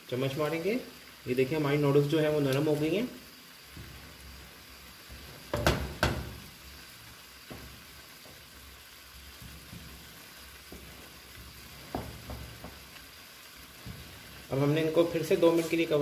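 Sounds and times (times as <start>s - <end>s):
broth bubbling and sizzling: 0.0s - 16.0s
spoon knocking against pan: 5.5s - 6.4s, 11.8s - 12.8s
wooden spoon stirring noodles: 7.4s - 16.0s.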